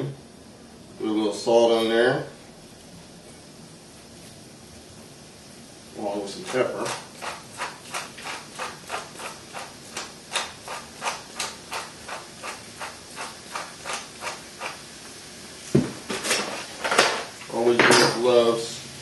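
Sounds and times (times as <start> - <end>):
pepper mill grinding: 6.1 - 14.9
mill knocking on counter: 15.7 - 16.1.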